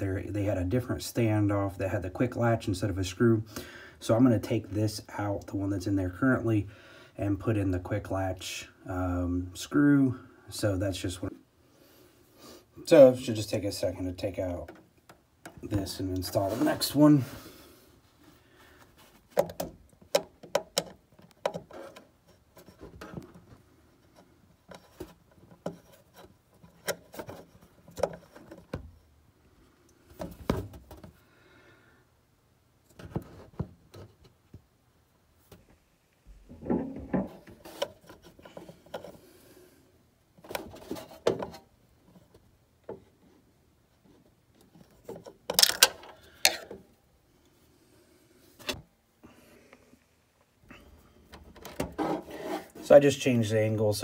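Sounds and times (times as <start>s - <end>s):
knocks and rubbing: 36.3s - 39.2s, 51.4s - 52.9s.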